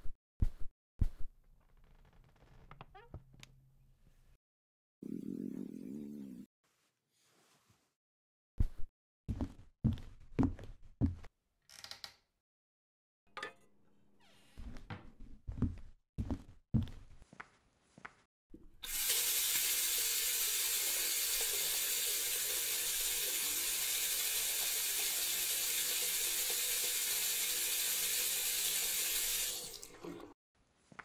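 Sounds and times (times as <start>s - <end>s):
tap water running into a pan: 18.8s - 30.4s.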